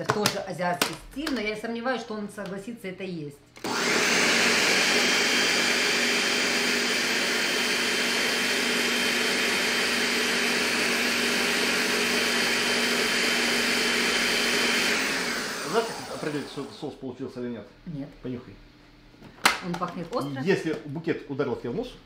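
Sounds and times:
blender whirring: 3.6 - 17.0.

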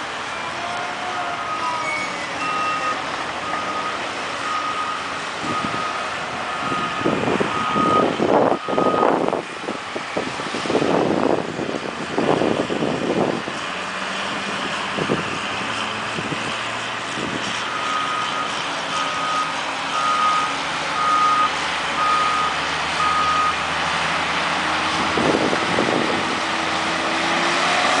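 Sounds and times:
heavy diesel machines running: 0.0 - 28.0
reversing alarm beeping: 1.4 - 9.2, 17.7 - 23.6.

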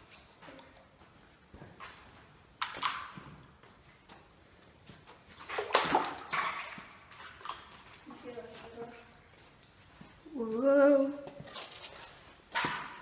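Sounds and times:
footsteps splashing through water: 1.8 - 9.8.

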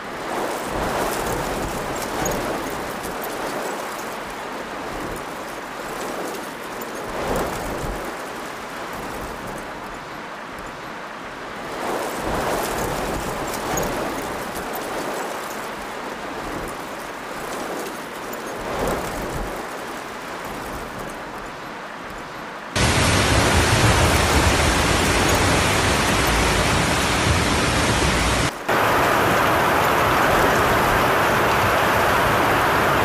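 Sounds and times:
flood torrent rushing: 22.8 - 33.0
heavy rain pouring: 22.8 - 33.0.

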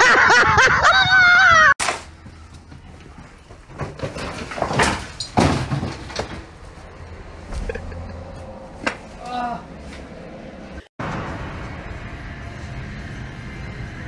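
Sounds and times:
heavy thuds and scrapes: 1.8 - 7.8.

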